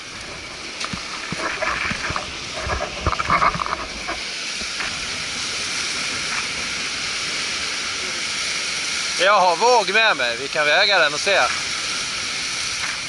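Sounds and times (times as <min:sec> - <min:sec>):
small waves washing ashore: 0:00.0 - 0:13.0.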